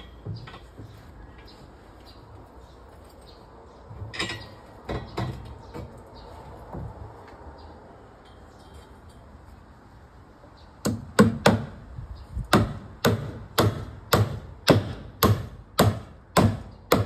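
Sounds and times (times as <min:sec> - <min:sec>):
hammer nailing timber: 0:10.8 - 0:11.8, 0:12.5 - 0:17.0.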